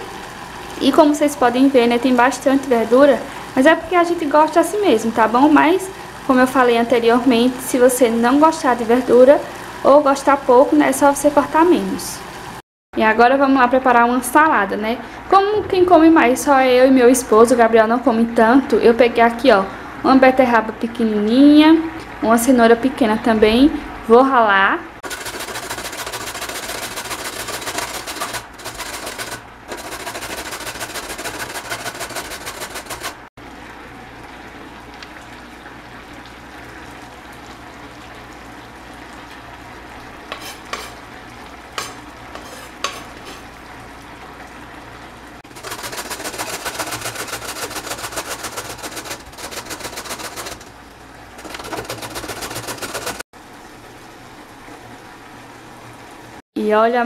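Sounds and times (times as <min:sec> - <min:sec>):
box grater rasping: 0:25.0 - 0:33.2, 0:45.5 - 0:50.7, 0:51.4 - 0:53.2
light scrapes and taps: 0:40.3 - 0:41.0, 0:41.8 - 0:43.4.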